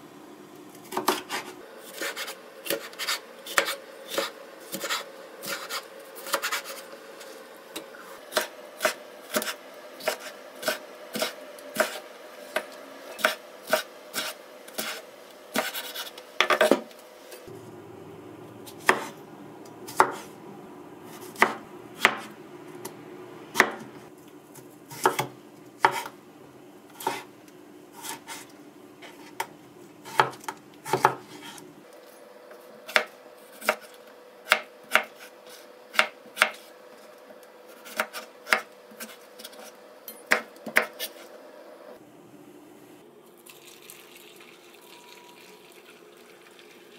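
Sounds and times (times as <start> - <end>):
knife chopping on wooden board: 0.9 - 6.8, 8.3 - 12.0, 18.8 - 19.2, 19.9 - 20.3, 21.1 - 22.3, 23.6 - 23.9, 24.9 - 26.2, 27.0 - 27.3, 29.0 - 31.6, 34.5 - 35.3, 35.9 - 36.7, 40.3 - 41.1.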